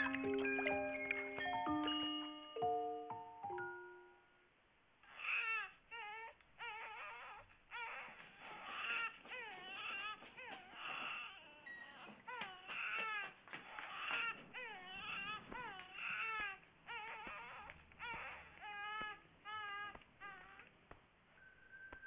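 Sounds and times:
baby crying: 5.1s - 20.7s.

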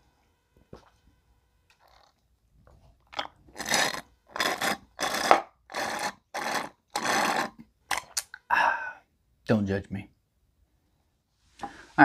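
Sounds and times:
slurping through a straw: 3.5s - 8.3s.

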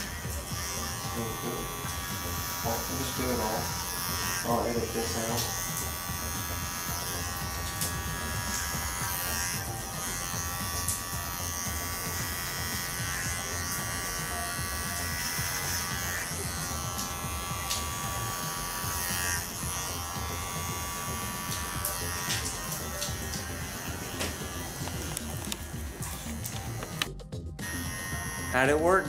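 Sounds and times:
hair clipper buzzing: 0.0s - 29.0s.

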